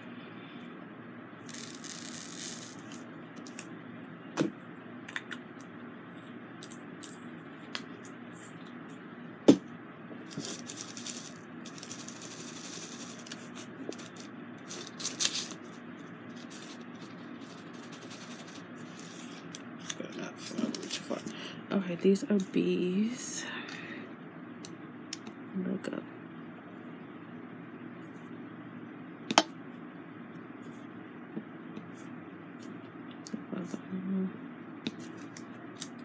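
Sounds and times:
faint steady hum: 0.0 - 36.0
small beads rattling in plastic tray: 1.5 - 3.0, 10.4 - 15.6.

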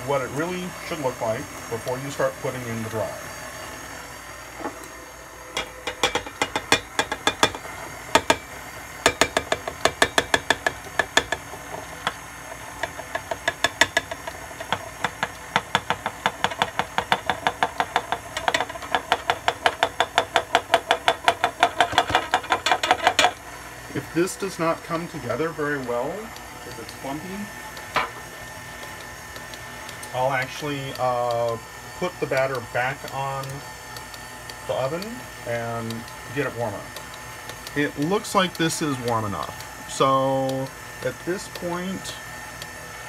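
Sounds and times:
stand mixer running: 0.0 - 43.0.

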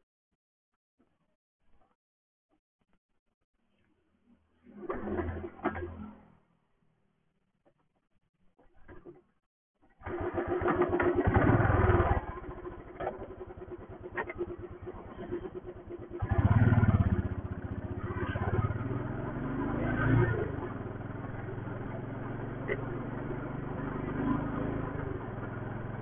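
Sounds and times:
motorcycle engine starting and revving: 4.6 - 6.5, 9.9 - 26.0
motorcycle engine idling: 10.0 - 19.3.

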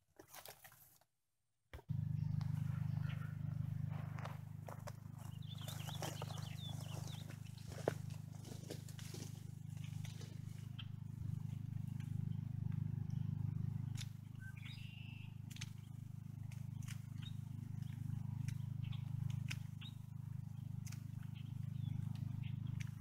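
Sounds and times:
steady low rumble: 1.9 - 23.0
bird twittering: 2.2 - 3.6, 5.1 - 16.0, 16.6 - 23.0
dry reeds crackling and snapping: 4.6 - 10.8, 13.9 - 23.0.

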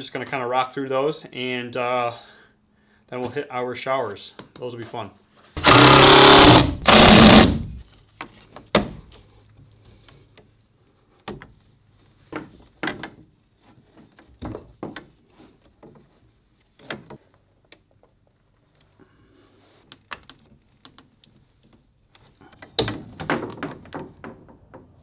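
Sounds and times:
cordless drill driving screw: 5.6 - 7.8.

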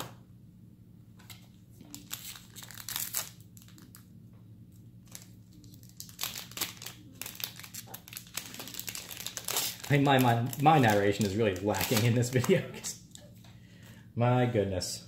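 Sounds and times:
plastic wrapper crinkling and tearing: 1.8 - 4.1, 4.7 - 12.9.

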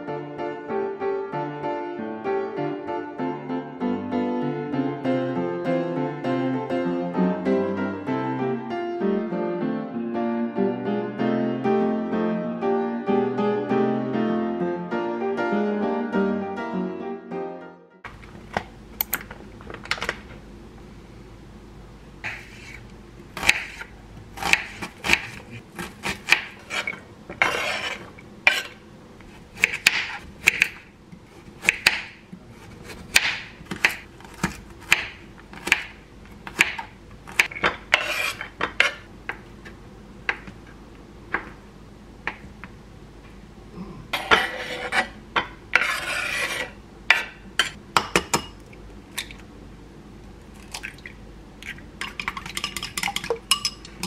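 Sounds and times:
knife scraping board: 22.2 - 22.8, 23.4 - 30.7, 37.4 - 39.1, 44.2 - 47.7
knife chopping on wooden board: 23.4 - 23.8, 24.4 - 28.8, 29.6 - 30.8, 31.6 - 39.0.

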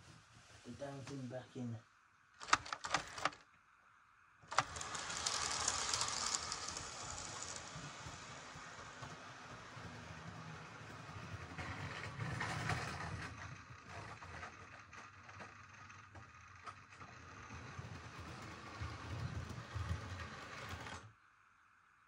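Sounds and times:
scattered clicks: 4.5 - 7.7
model train motor hum: 4.5 - 21.1
wheels rattling on rails: 4.5 - 21.1.

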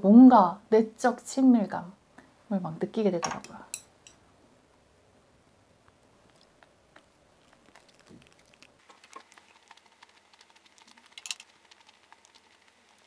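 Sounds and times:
chewing and mouth clicks: 5.8 - 13.0.

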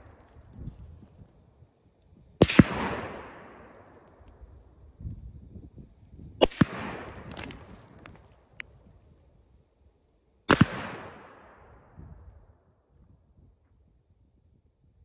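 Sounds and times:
rifle shots with rolling echo: 2.4 - 4.2, 6.4 - 7.6, 10.5 - 12.0.

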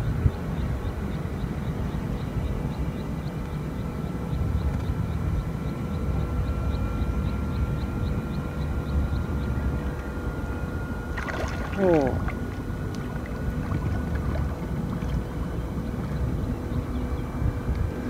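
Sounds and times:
low rumble: 8.0 - 18.0.

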